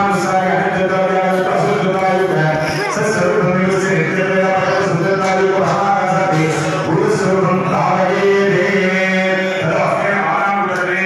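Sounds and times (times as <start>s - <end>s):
men chanting: 0.0s - 11.0s.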